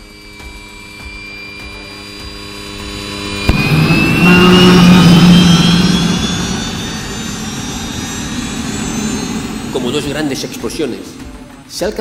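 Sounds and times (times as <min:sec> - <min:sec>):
turbine engine roar with whine: 0:00.0 - 0:12.0
sharp bang: 0:03.4 - 0:07.5.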